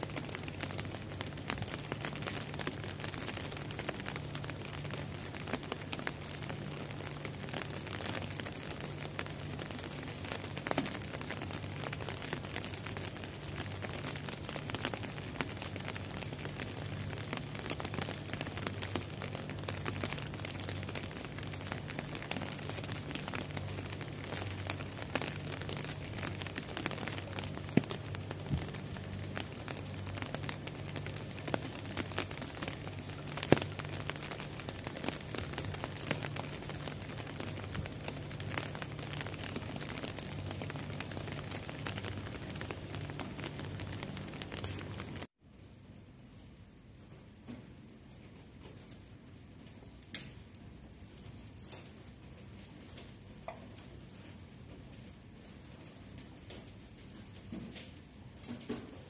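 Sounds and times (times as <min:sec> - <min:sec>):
heavy rain on glass: 0:00.0 - 0:45.4.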